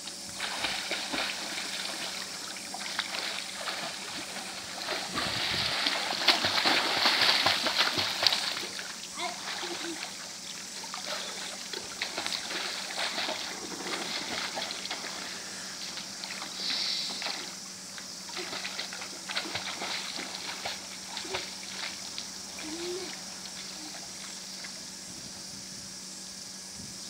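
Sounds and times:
swimming pool water splashing: 0.0s - 17.6s, 18.2s - 24.8s
steady low hum: 0.0s - 27.0s.

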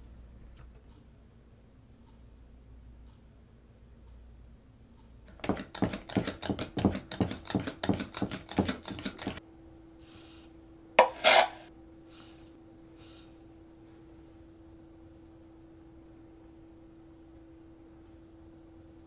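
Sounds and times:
whisk clinking in a bowl: 5.3s - 9.4s.

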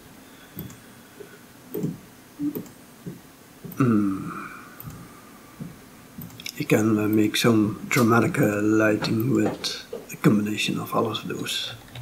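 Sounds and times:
person's drawn-out falling vocal sound: 3.8s - 4.7s.

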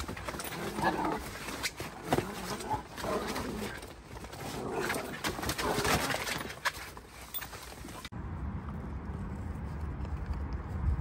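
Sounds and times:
puppies growling: 0.0s - 6.7s
paws scuffling and clicking: 0.0s - 8.1s.

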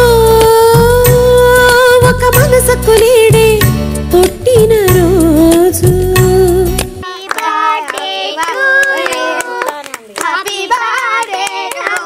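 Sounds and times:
hands clapping: 6.8s - 12.0s
girls singing together: 7.0s - 12.0s.

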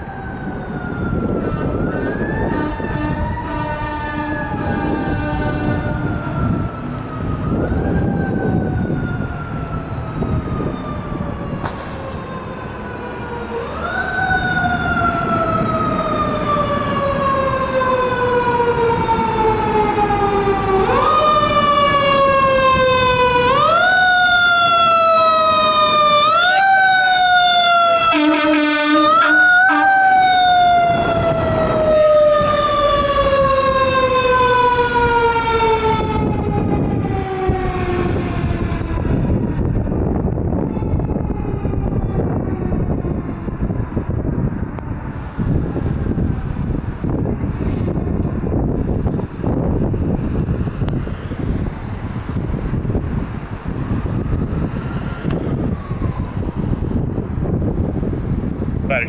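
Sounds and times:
mechanical siren wailing: 0.0s - 59.0s
horn blasts: 2.5s - 4.4s, 28.1s - 30.1s.

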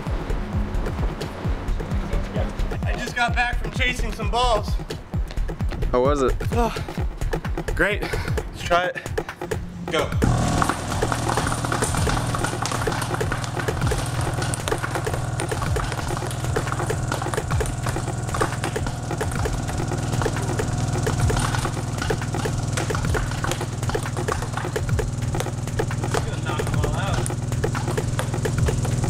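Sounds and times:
subwoofer low bass tone: 10.2s - 29.0s
ping pong balls clattering: 10.4s - 29.0s.

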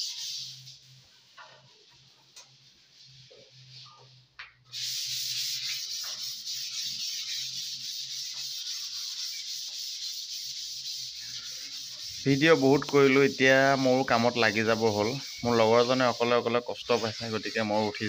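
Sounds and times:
sandpaper scratching on putty: 0.0s - 0.8s, 4.7s - 18.0s.

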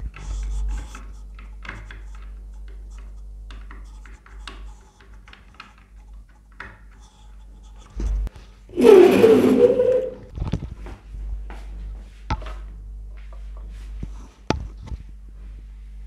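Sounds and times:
cable connector clicking and scratching: 0.1s - 8.1s.

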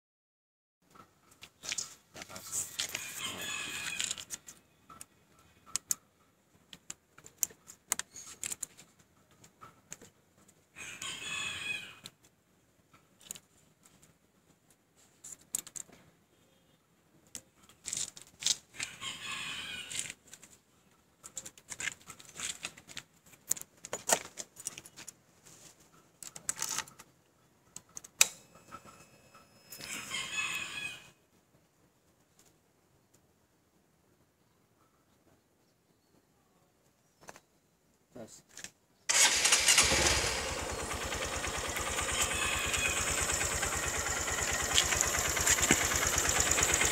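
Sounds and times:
rooster crowing: 2.9s - 4.4s, 10.8s - 12.1s, 18.8s - 20.0s, 29.8s - 31.1s, 39.4s - 45.6s
hands handling wires and tools: 6.6s - 10.6s, 13.2s - 16.1s, 17.2s - 18.9s, 21.2s - 28.3s.

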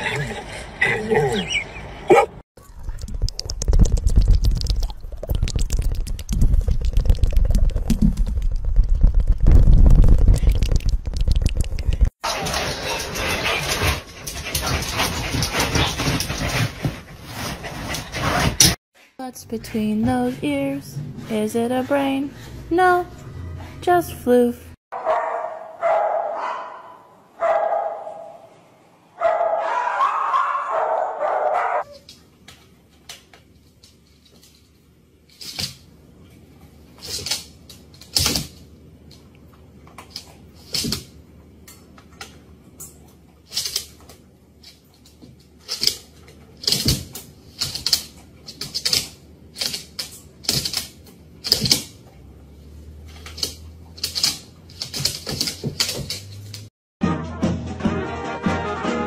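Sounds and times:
dog drawn-out barks: 2.1s - 2.4s, 25.0s - 28.4s, 29.2s - 31.9s.

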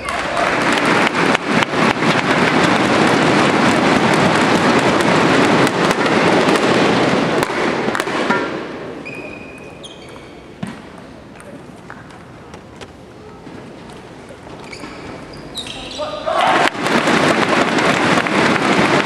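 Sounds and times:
crowd cheering: 0.0s - 6.8s, 16.1s - 19.0s
crowd clapping: 0.0s - 6.8s, 16.6s - 19.0s
thunder sticks beating: 0.0s - 9.0s, 16.3s - 19.0s.

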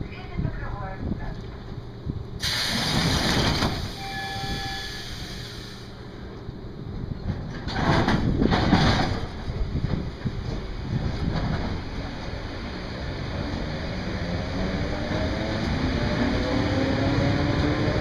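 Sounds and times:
train low rumble: 0.0s - 18.0s
compressed air hiss: 2.4s - 3.1s, 4.7s - 6.0s.

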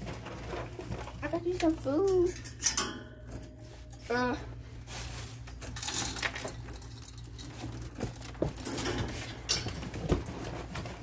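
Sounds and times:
dry pet food rustling in dish: 3.6s - 11.0s.

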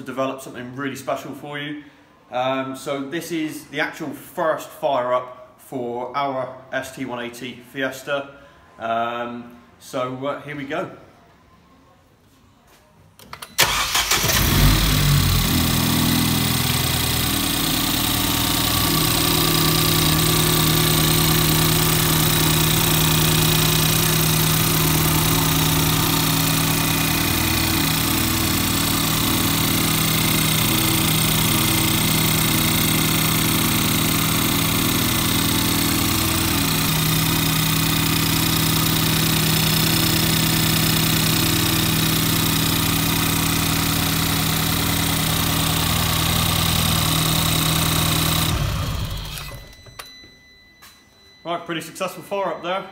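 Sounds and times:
car engine idling: 13.6s - 49.8s.

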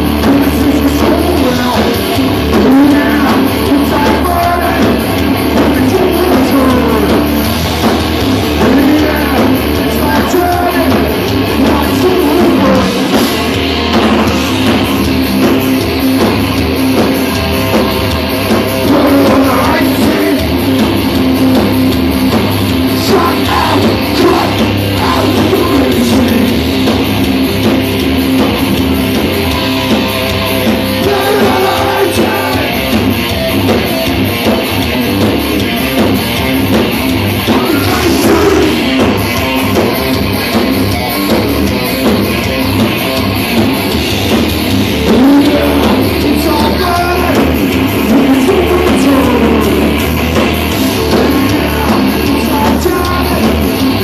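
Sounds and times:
bass guitar: 0.0s - 54.0s
distorted electric guitar: 0.0s - 54.0s
drum kit: 0.0s - 54.0s
person singing: 0.2s - 7.4s, 8.6s - 13.3s, 18.5s - 20.6s, 23.0s - 26.7s, 30.8s - 33.0s, 37.5s - 39.0s, 45.0s - 50.0s, 51.0s - 54.0s.

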